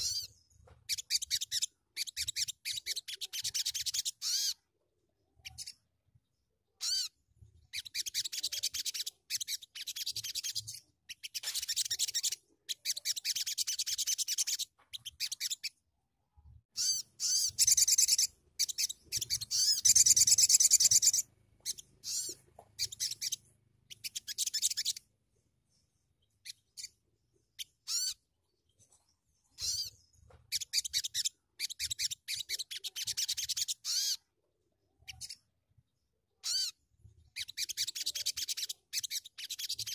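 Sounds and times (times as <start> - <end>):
sunbird singing: 16.8 - 25.1.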